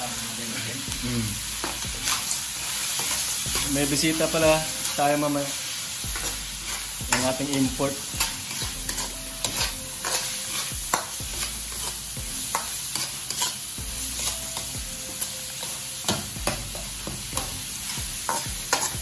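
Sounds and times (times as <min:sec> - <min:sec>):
vegetables sizzling in a frying pan: 0:00.0 - 0:19.0
spatula scraping and tapping a pan: 0:06.1 - 0:13.6, 0:14.2 - 0:19.0.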